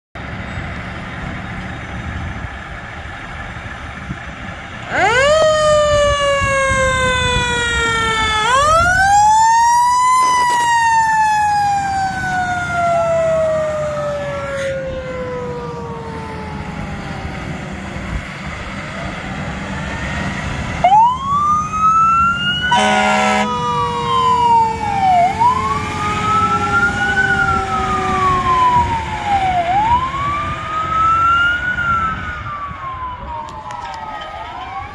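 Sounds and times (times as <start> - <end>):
low engine rumble: 0.2 - 22.8
fire truck sirens wailing: 0.2 - 34.9
horn blast: 22.7 - 23.6.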